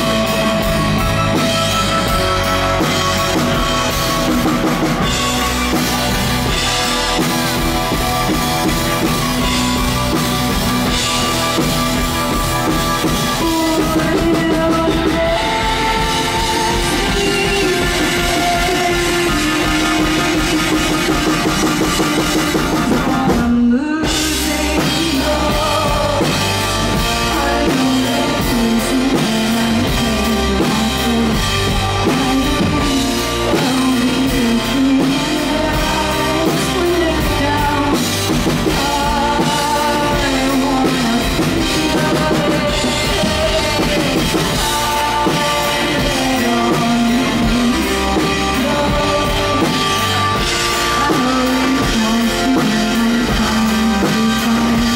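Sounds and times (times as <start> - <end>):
drum kit: 0.0 - 54.9
electric guitar: 0.0 - 54.9
woman singing into a microphone: 13.3 - 54.9.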